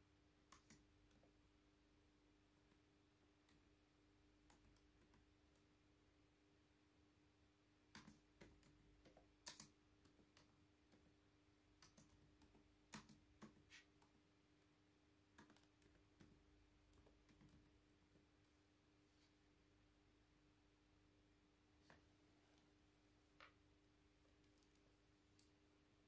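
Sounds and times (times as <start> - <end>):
faint steady hum: 0.0 - 26.0
laptop keys typing: 0.4 - 1.3, 2.7 - 5.7, 7.8 - 14.2, 15.2 - 18.4.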